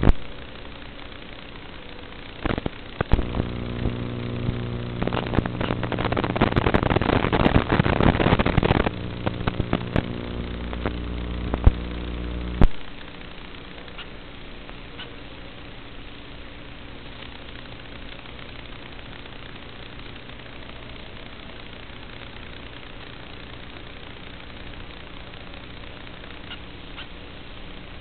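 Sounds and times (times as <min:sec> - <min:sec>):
rough hiss and crackle: 0:00.0 - 0:28.0.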